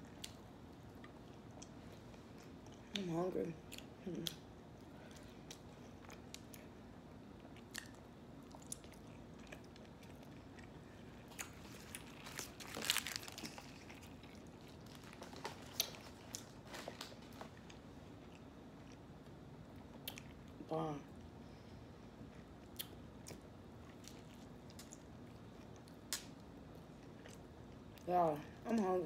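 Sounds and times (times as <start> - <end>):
soft chewing: 0.0 - 29.0
rustling and handling noise: 11.3 - 17.9.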